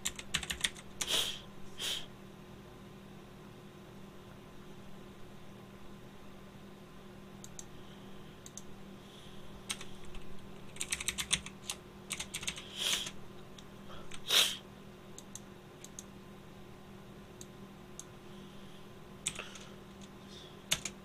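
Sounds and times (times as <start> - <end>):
keyboard typing: 0.0 - 1.0, 9.7 - 13.2, 19.2 - 21.0.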